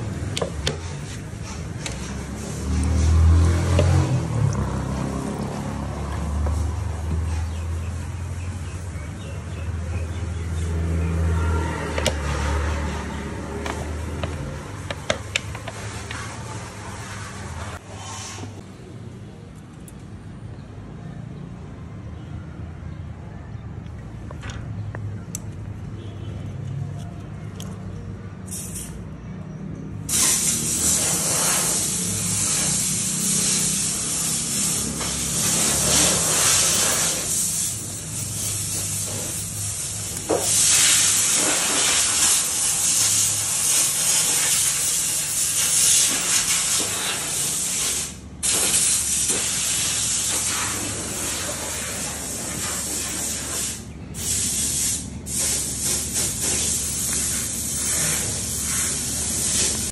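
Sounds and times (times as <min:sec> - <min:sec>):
loud steady hiss: 0:30.1 - 0:59.9.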